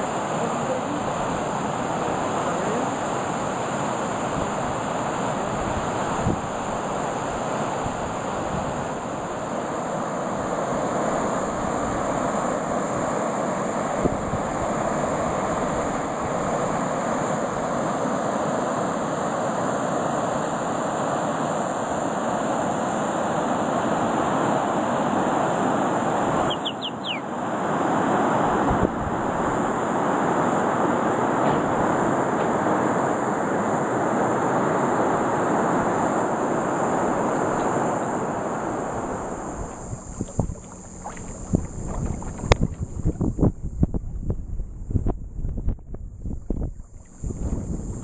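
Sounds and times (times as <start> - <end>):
wind on microphone: 4.2 - 9.4, 13.8 - 17.8, 26.2 - 48.0
bird chirping: 26.4 - 27.3.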